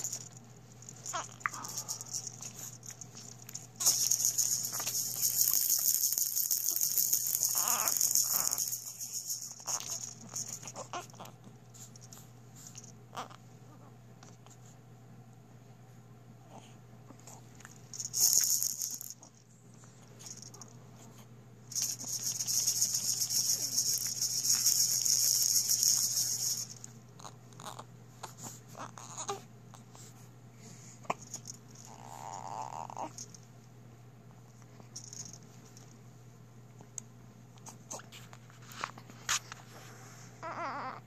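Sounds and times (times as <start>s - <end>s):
plastic rattle ball shaken: 0.0s - 13.0s, 17.6s - 20.7s, 21.7s - 27.0s, 31.1s - 33.5s, 34.8s - 36.0s.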